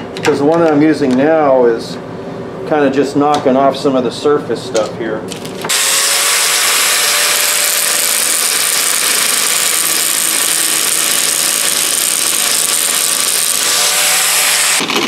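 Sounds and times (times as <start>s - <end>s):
angle grinder grinding steel: 5.7s - 15.0s.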